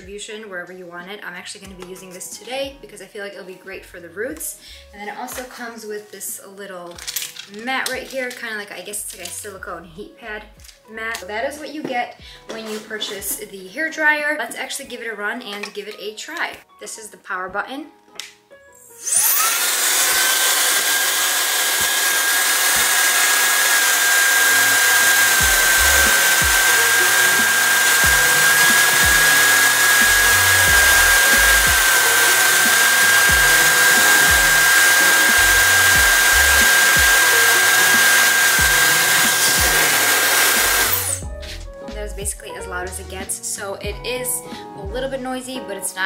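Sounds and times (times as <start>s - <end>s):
hair dryer whining and blowing: 19.0s - 41.3s.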